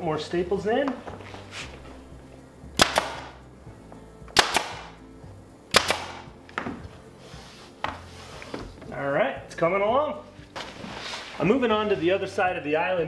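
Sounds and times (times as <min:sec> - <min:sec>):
nail gun firing: 0:02.8 - 0:03.4, 0:04.4 - 0:04.9, 0:05.7 - 0:06.3.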